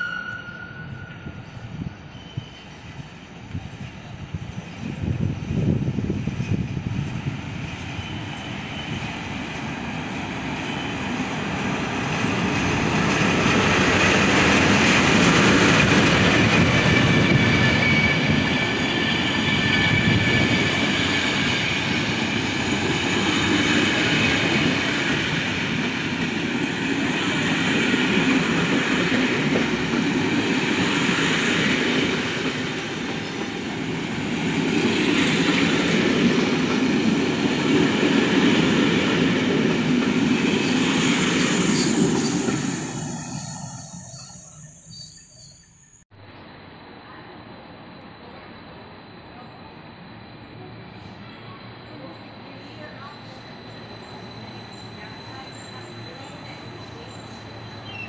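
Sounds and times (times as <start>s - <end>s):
high wheel squeal: 0.0s - 3.1s, 7.8s - 9.3s, 10.6s - 11.2s, 16.4s - 21.9s, 40.6s - 46.0s, 53.2s - 58.0s
train wheels rumbling on rails: 0.0s - 45.6s, 50.4s - 58.0s.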